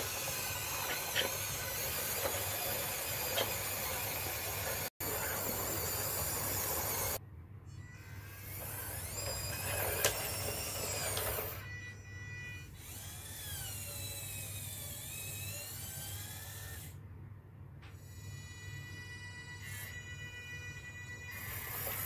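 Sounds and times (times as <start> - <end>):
small gear motor whining: 0.0 - 7.2, 7.8 - 17.0, 18.0 - 22.0.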